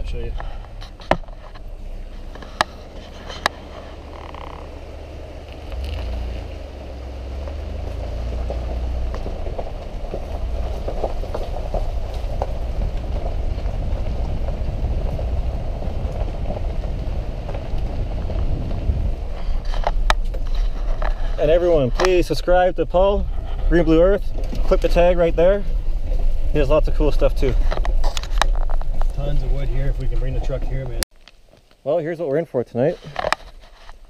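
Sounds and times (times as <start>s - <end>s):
crackling rush: 0.0s - 31.9s
truck engine and tyre rumble: 0.0s - 31.9s, 32.7s - 34.0s.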